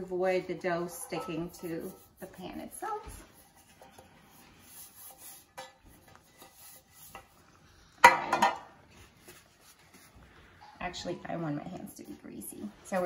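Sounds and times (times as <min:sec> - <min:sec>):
metal pan clattering on countertop: 0:08.0 - 0:08.7
faint handling sounds: 0:08.7 - 0:13.0.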